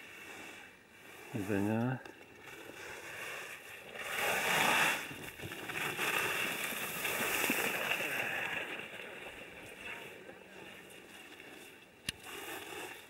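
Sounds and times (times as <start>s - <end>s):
skis scraping on snow: 0.0s - 13.0s.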